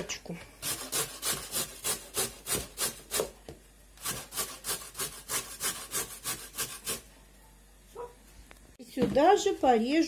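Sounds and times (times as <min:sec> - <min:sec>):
carrot grated on metal grater: 0:04.0 - 0:07.0.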